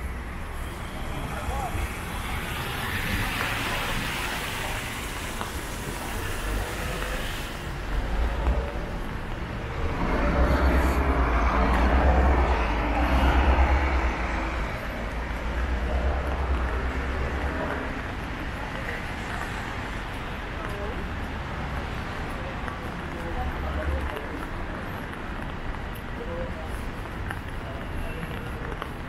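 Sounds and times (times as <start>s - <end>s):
hum of car traffic: 0.0s - 29.0s
vehicle passing close: 9.6s - 17.2s.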